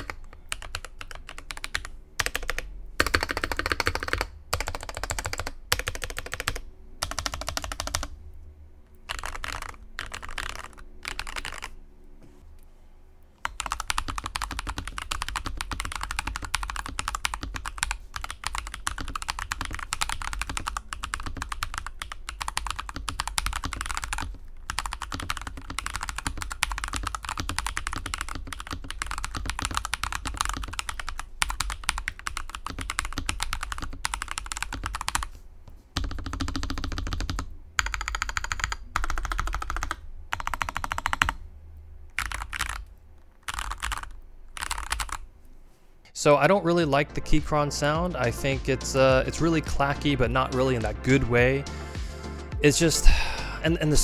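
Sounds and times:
fast mechanical keyboard typing: 0.0 - 8.2, 9.0 - 11.8, 13.4 - 35.3, 36.0 - 41.4, 42.1 - 45.2.

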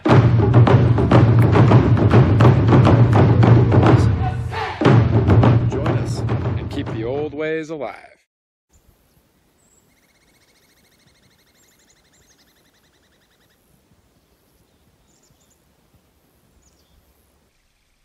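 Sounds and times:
songbird trilling and chirping: 8.7 - 15.6, 16.6 - 17.2.

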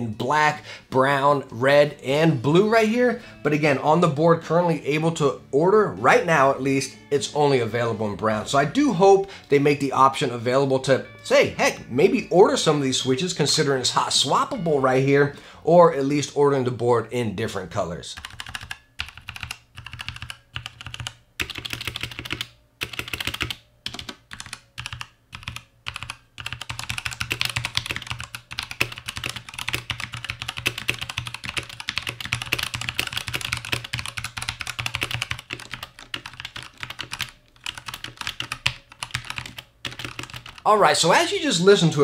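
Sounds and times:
mechanical keyboard typing: 18.2 - 40.7.

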